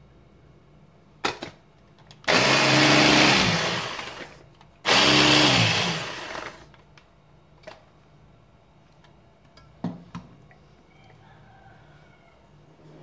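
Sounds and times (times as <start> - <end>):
blender motor whirring: 2.3 - 6.7.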